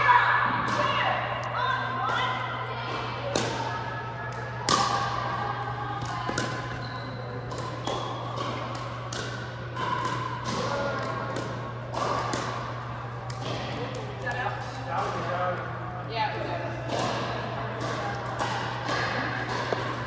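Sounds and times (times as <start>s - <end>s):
steady low hum: 0.0s - 20.0s
ball bouncing on hardwood court: 6.0s - 15.6s, 16.8s - 20.0s.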